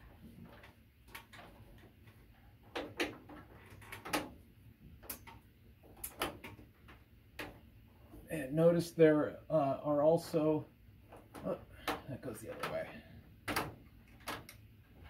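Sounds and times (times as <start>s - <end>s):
wires clicking in metal box: 0.4s - 4.4s, 5.0s - 7.7s, 11.1s - 14.7s.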